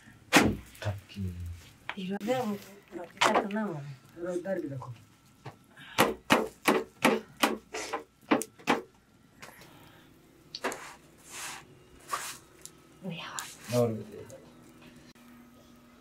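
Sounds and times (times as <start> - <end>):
sharp knocks: 6.0 - 7.6, 8.3 - 8.9.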